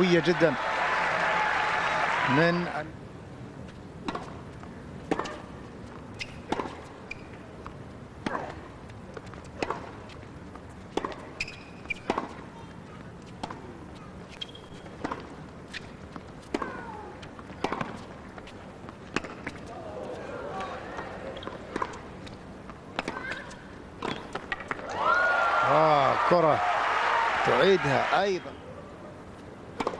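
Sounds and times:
tennis ball hits and bounces: 0:04.0 - 0:04.4, 0:05.1 - 0:12.6, 0:13.3 - 0:13.7, 0:14.3 - 0:25.0
shoe squeaks: 0:06.1 - 0:07.4, 0:11.3 - 0:12.2, 0:14.0 - 0:15.0, 0:15.7 - 0:16.0.

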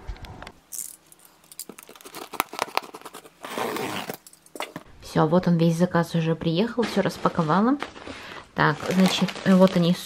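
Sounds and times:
packaging rustle: 0:01.2 - 0:04.8, 0:06.8 - 0:10.0
crinkling plastic and cardboard: 0:01.2 - 0:04.9, 0:06.6 - 0:10.0.

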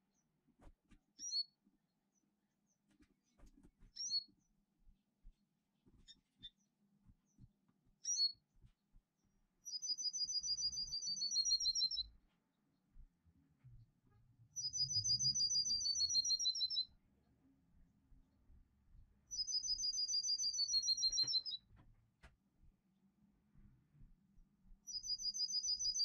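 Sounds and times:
songbird chirping and trilling: 0:09.6 - 0:12.1, 0:14.5 - 0:17.0, 0:19.3 - 0:21.7, 0:24.9 - 0:26.0.

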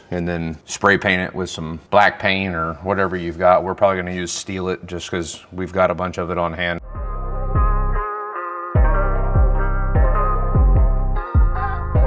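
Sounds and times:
deep bass hits sliding down: 0:06.8 - 0:08.0, 0:08.8 - 0:12.0
held chord tones: 0:06.8 - 0:12.0.

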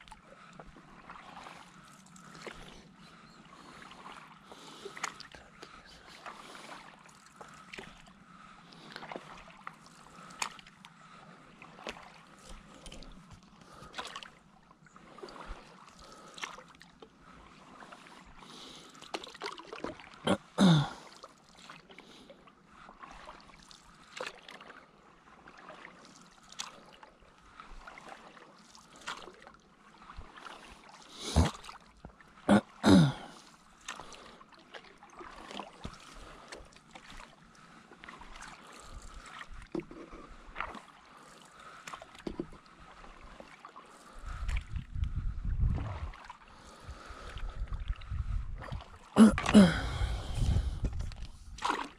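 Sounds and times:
paddle strokes in water: 0:00.0 - 0:51.9
water dripping off paddle: 0:04.0 - 0:05.8, 0:51.6 - 0:51.9
loud gurgling paddle strokes: 0:51.6 - 0:51.9.

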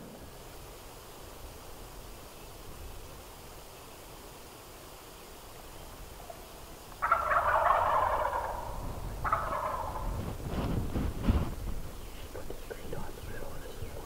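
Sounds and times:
turkey gobbling: 0:07.0 - 0:10.2.

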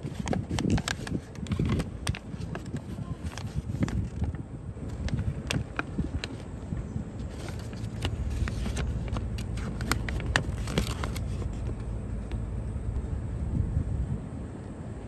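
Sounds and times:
paper crinkling by hand: 0:00.0 - 0:06.5, 0:07.2 - 0:11.9
low background rumble: 0:00.0 - 0:15.0.

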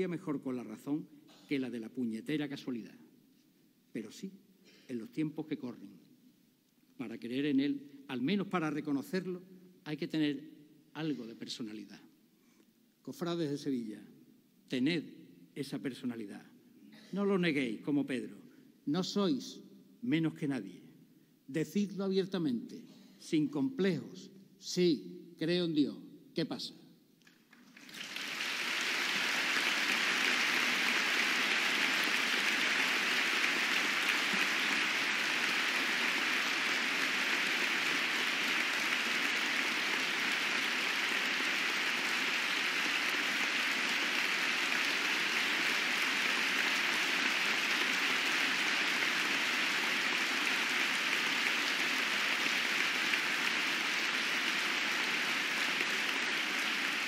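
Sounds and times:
audience applauding: 0:27.3 - 0:57.0.

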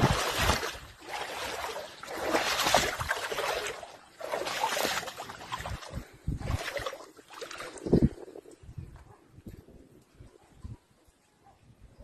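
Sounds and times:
wind on microphone: 0:00.0 - 0:01.0, 0:04.9 - 0:11.0
rushing water: 0:00.0 - 0:08.2.

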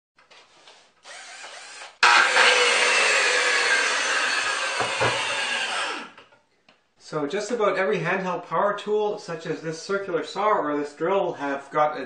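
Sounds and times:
circular saw motor whining: 0:01.1 - 0:06.2.

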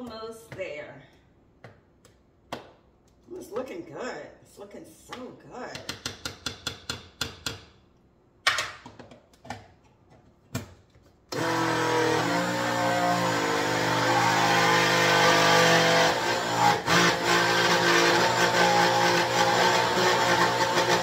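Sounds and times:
blender motor running: 0:11.3 - 0:21.0.

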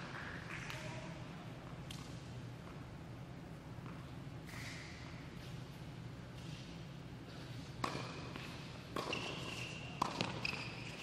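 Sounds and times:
low hall hum: 0:00.0 - 0:11.0
tennis ball hits and bounces: 0:07.8 - 0:11.0
sneaker squeaks on court: 0:07.9 - 0:11.0.

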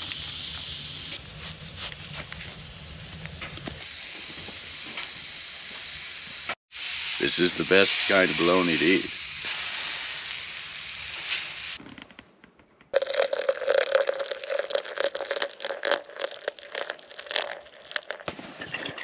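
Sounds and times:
meat sizzling on stove top: 0:00.0 - 0:11.8
coffee pouring into a mug: 0:13.0 - 0:18.9.

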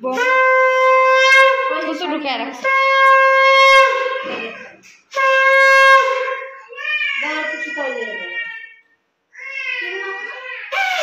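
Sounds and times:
conch shell blasts: 0:00.0 - 0:02.0, 0:02.6 - 0:04.4, 0:05.1 - 0:06.6, 0:10.8 - 0:11.0.

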